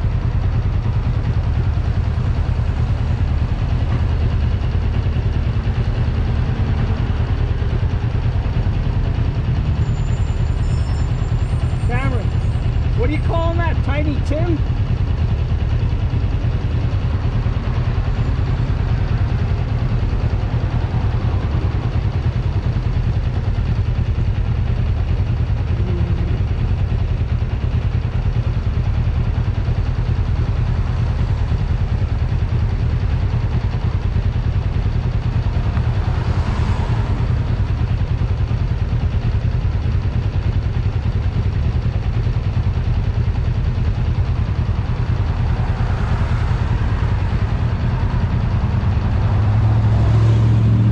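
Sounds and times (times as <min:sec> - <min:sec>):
motorcycle engine idling: 0:00.0 - 0:50.9
vehicle passing: 0:45.2 - 0:50.9.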